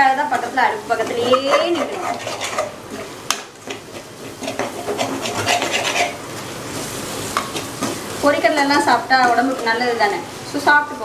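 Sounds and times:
metal spatula scraping pan: 0:00.4 - 0:06.9.

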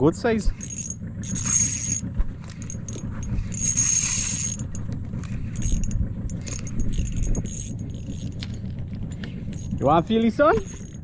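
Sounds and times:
low rumble: 0:00.0 - 0:11.0
fishing reel gears whirring: 0:00.1 - 0:11.0
clicks and handling knocks: 0:00.4 - 0:11.0.

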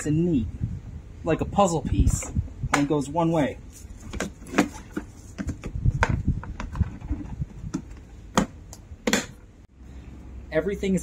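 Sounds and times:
hose handling and rubbing: 0:03.6 - 0:08.1.

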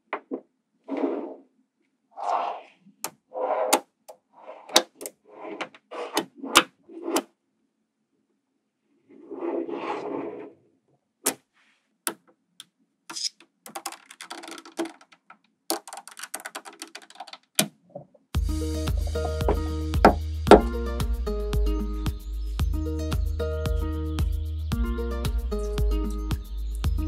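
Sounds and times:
magnetic balls clicking: 0:12.1 - 0:17.7
magnetic balls rattling: 0:13.1 - 0:17.6.

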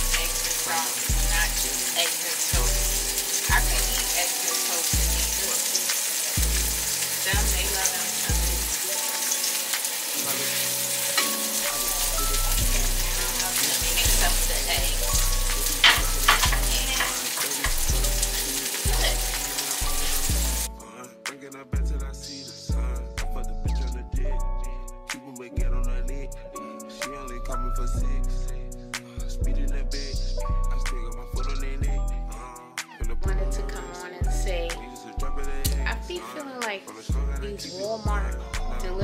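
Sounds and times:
food sizzling in a pan: 0:00.0 - 0:20.7
music with thumping bass beat: 0:17.6 - 0:19.5, 0:21.8 - 0:26.3, 0:29.3 - 0:32.4.

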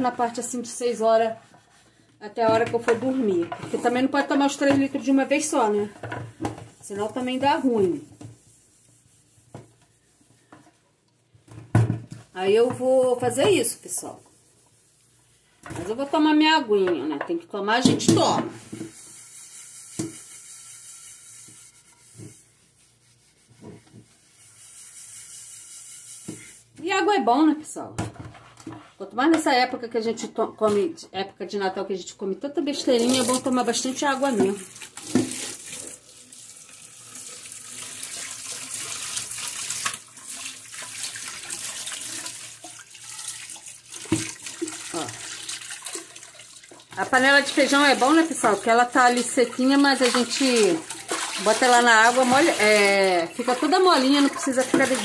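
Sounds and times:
sponge scrubbing a pot: 0:00.0 - 0:10.8, 0:12.2 - 0:16.5, 0:18.5 - 0:26.8, 0:32.8 - 0:36.1, 0:37.2 - 0:55.0
tap water splashing on metal pot: 0:34.2 - 0:48.5, 0:53.3 - 0:55.0.

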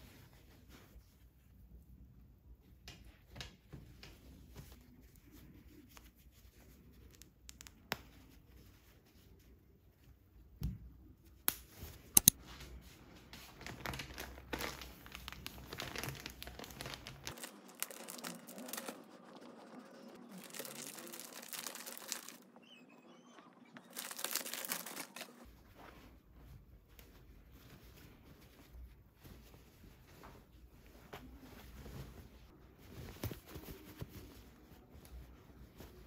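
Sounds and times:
plastic packaging crinkling and tearing: 0:13.6 - 0:19.2, 0:20.2 - 0:22.6, 0:23.8 - 0:25.5.

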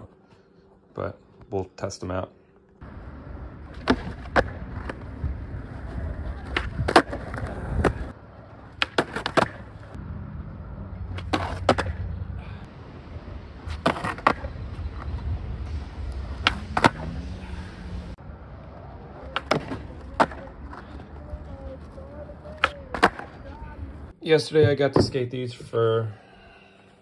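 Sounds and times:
skateboard wheels rolling: 0:02.8 - 0:12.3, 0:13.0 - 0:24.1
skateboard popping and landing: 0:03.6 - 0:10.0, 0:11.1 - 0:12.1, 0:13.7 - 0:14.6, 0:16.4 - 0:17.1, 0:19.2 - 0:21.0, 0:21.8 - 0:23.5.

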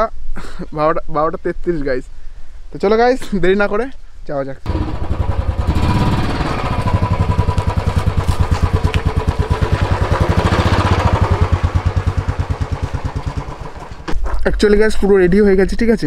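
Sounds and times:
motorcycle engine at low revs: 0:04.7 - 0:14.1.

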